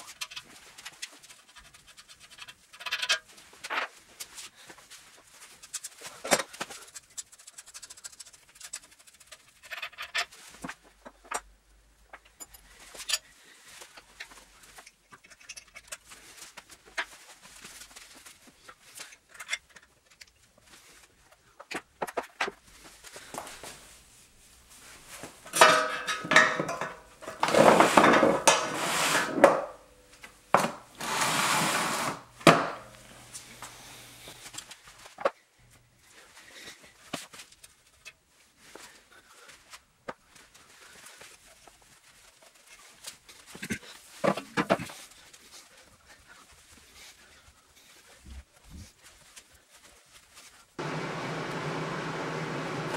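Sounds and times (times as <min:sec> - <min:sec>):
metal clicks and clinks: 0:14.8 - 0:16.1
metal rattling and scraping: 0:25.4 - 0:29.7.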